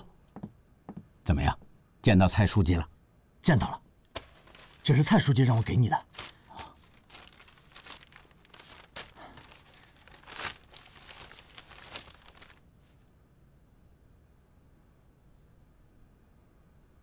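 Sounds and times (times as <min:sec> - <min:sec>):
paper rustling and crinkling: 0:04.1 - 0:13.1.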